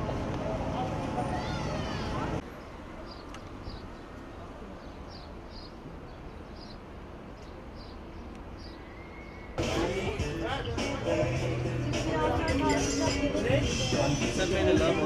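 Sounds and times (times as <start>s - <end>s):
voices: 0.0s - 2.4s, 9.6s - 15.0s
outdoor background rumble: 0.0s - 2.5s
loud music: 9.6s - 15.0s.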